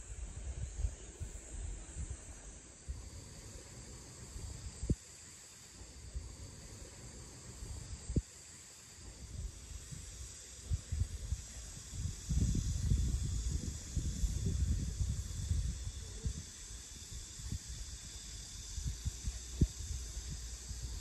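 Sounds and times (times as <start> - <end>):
insects trilling: 0.0 - 21.0
wind buffeting microphone: 9.3 - 21.0.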